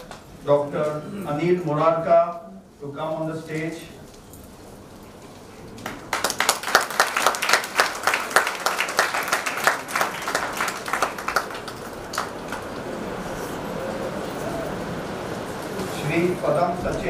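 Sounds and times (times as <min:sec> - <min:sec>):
audience applauding: 0:05.7 - 0:15.4.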